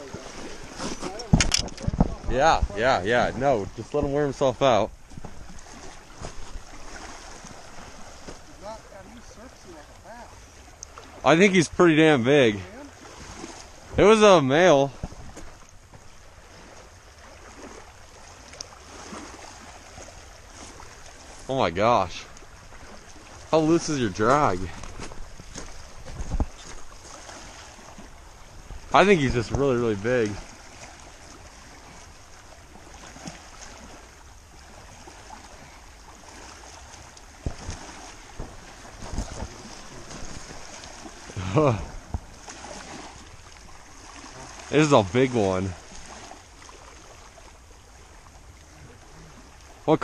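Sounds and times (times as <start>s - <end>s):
wind buffeting microphone: 0.0s - 9.7s, 14.9s - 15.9s, 23.7s - 30.6s, 37.3s - 42.4s
water lapping at shore: 0.0s - 50.0s.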